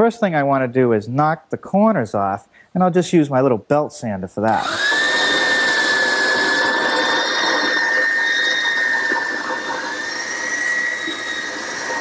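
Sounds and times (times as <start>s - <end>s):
belt sander on wood: 4.6s - 12.0s.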